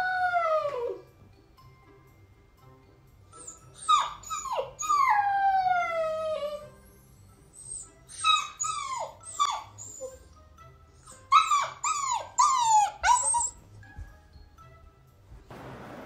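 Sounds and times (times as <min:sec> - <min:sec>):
puppy howling: 0:00.0 - 0:01.1, 0:03.4 - 0:06.7, 0:07.6 - 0:10.2, 0:11.1 - 0:13.6.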